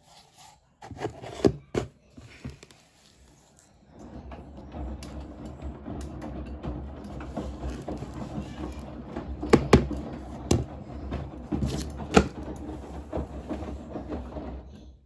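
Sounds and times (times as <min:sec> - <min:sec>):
plastic box and scoop clattering: 0:00.8 - 0:03.2, 0:06.7 - 0:14.6.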